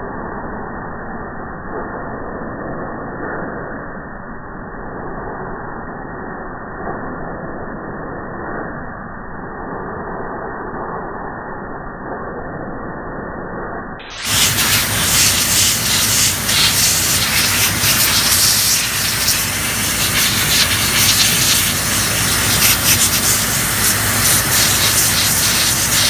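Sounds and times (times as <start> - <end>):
compressed air hissing: 14.1 - 26.0.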